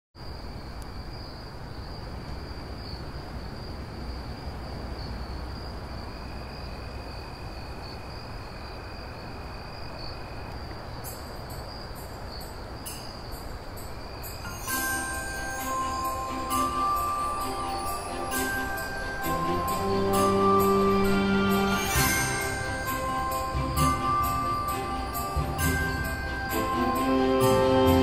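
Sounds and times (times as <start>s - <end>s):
crickets chirping: 0.2s - 28.0s
low ambient hum: 0.2s - 28.0s
music: 14.3s - 28.0s
short bright high bursts: 14.4s - 28.0s.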